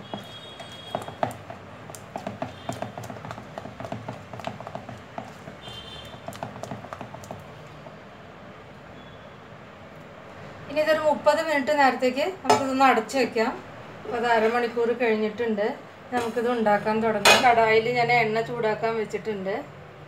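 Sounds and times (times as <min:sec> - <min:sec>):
hand beating batter in a bowl: 0:00.0 - 0:08.0.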